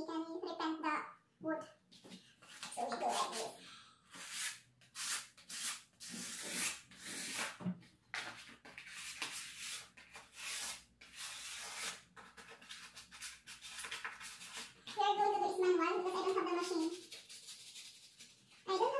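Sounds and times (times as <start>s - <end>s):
sandpaper sanding wood: 3.0s - 3.5s, 4.2s - 7.5s, 8.9s - 12.0s, 16.0s - 18.6s.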